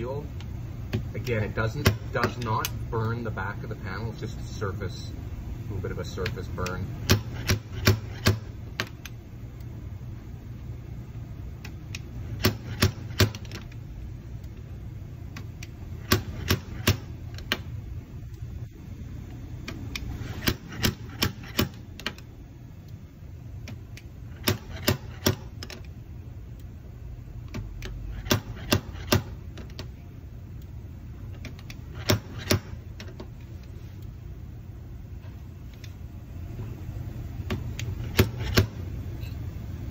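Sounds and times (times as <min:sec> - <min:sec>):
low steady hum: 0:00.0 - 0:39.9
slide hammer knocking: 0:24.4 - 0:25.5.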